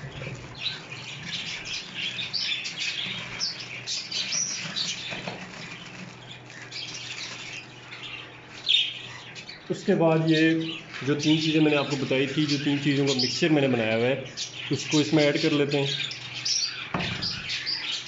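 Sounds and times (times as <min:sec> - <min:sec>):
plastic bag crinkling: 0:00.0 - 0:08.9
birds chirping and squawking: 0:00.0 - 0:18.0.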